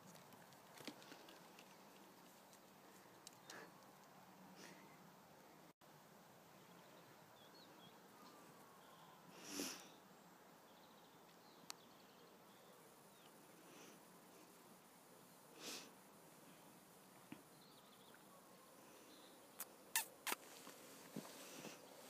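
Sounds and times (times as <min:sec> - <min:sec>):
breathy sniff: 0:09.3 - 0:10.0.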